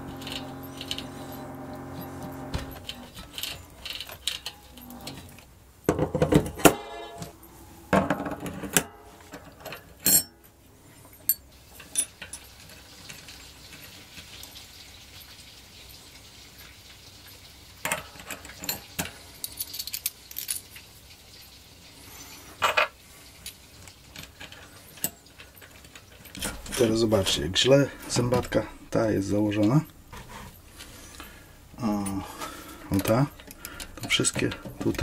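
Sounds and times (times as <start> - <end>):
metal sprockets clinking: 0.0 - 5.1.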